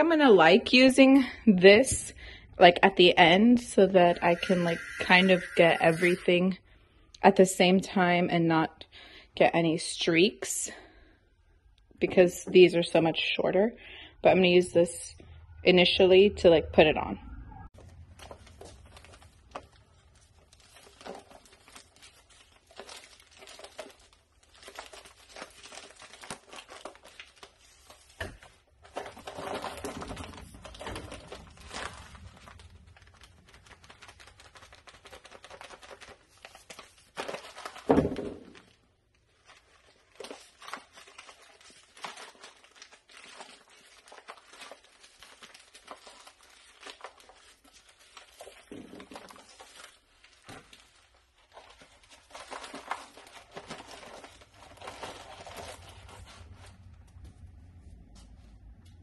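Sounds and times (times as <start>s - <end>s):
bag crinkling and rustling: 17.8s - 57.3s.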